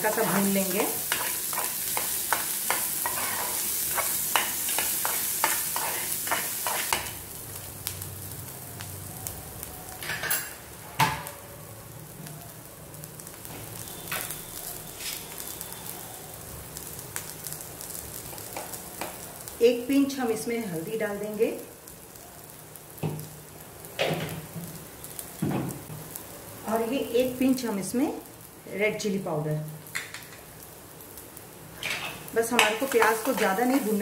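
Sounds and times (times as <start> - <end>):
onions sizzling in hot oil: 0.0 - 34.0
spoon scraping a metal pan: 1.0 - 7.0.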